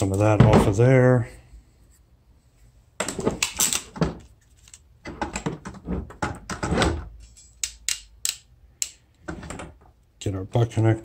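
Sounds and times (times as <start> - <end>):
ratcheting crimper clicks: 7.5 - 9.2.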